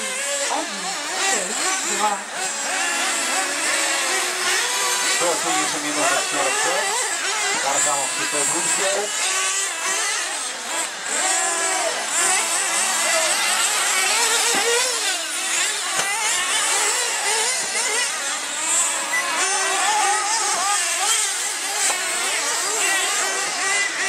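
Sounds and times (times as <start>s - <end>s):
rc car engines whining: 0.0s - 24.0s.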